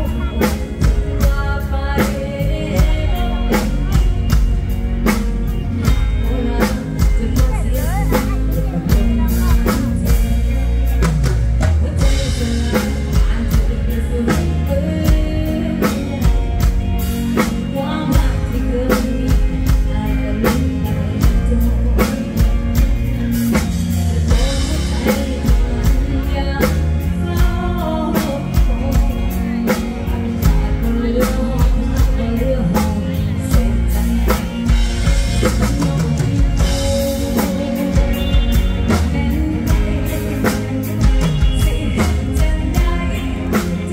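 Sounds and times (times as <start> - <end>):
drum kit beat: 0.0 - 43.9
live band music: 0.0 - 43.9
woman singing: 0.0 - 43.9.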